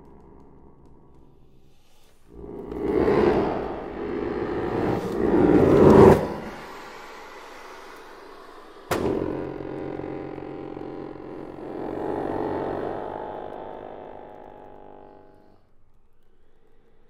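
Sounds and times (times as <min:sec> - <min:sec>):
accordion chords: 0:09.1 - 0:15.4.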